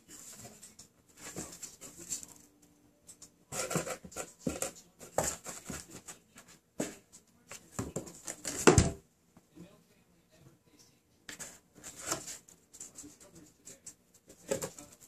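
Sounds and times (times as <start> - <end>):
paws scratching cardboard: 3.5 - 8.6, 11.3 - 15.0.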